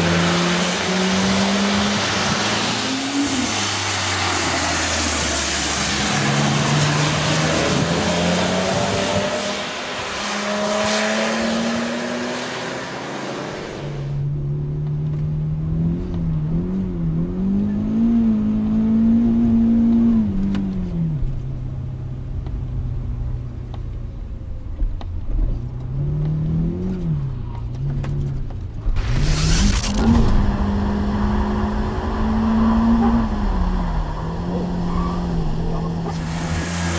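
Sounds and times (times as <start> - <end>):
car passing on wet track: 0.0 - 14.2, 29.0 - 36.9
hiss of tyre spray: 1.8 - 7.9, 35.9 - 36.9
muffled car engine from cabin: 14.0 - 36.9.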